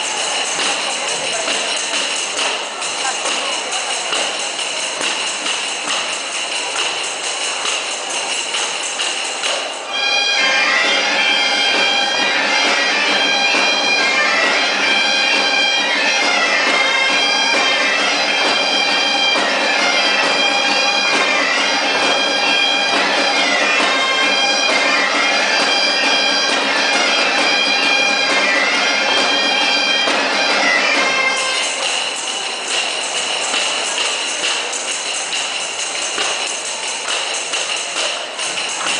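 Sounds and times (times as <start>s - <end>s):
bagpipes playing dance tune: 0.0s - 38.9s.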